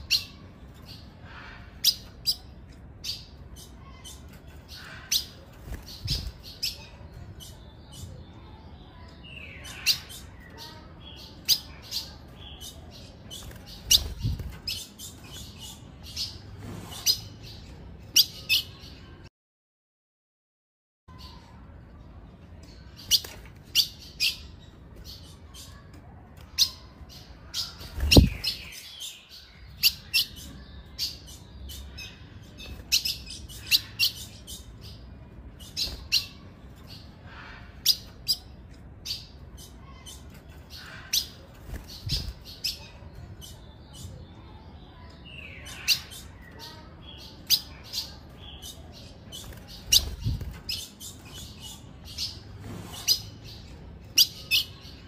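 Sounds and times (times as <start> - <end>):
bird chirping high: 26.5 - 55.0.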